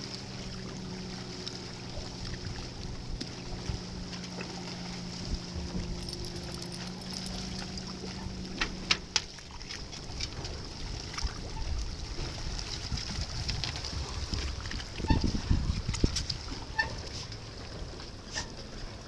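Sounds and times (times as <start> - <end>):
boat motor hum: 0.0 - 19.0
water trickling and sloshing: 0.0 - 19.0.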